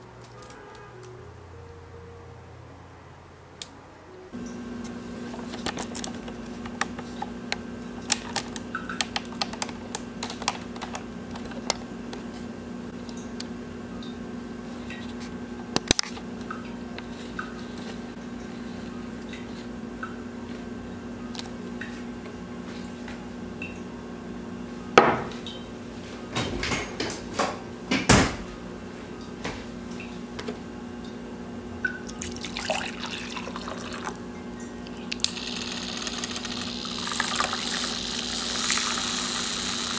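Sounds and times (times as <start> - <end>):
steady low hum: 4.2 - 39.9
knocks on wooden table: 25.0 - 25.3
liquid pouring into mug: 32.1 - 34.2, 35.1 - 38.0.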